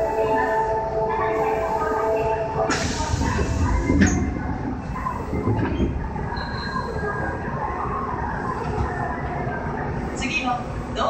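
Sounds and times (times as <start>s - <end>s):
subway train equipment hum: 0.0s - 11.0s.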